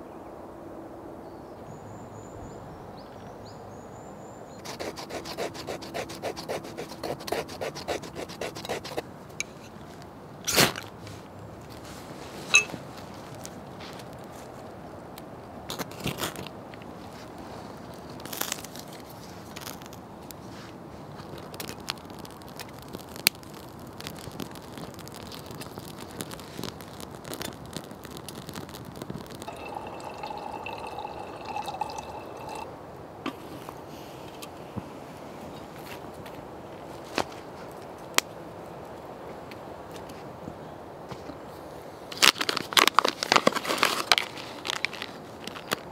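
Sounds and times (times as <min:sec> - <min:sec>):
wood fire crackling: 0:18.0 - 0:32.7
twigs snapping: 0:21.3 - 0:29.5.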